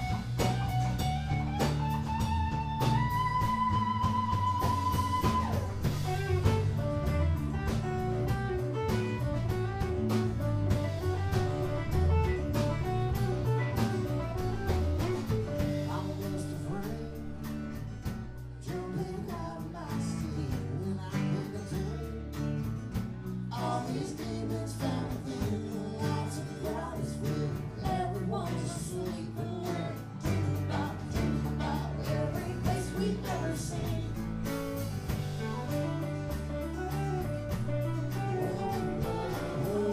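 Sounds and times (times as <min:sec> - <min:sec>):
acoustic guitar: 0:00.0 - 0:39.9
drums: 0:00.0 - 0:39.9
electric bass: 0:00.0 - 0:39.9
electric guitar: 0:00.0 - 0:39.9
person singing: 0:15.5 - 0:17.8, 0:18.6 - 0:22.5, 0:23.5 - 0:34.7, 0:38.0 - 0:39.9.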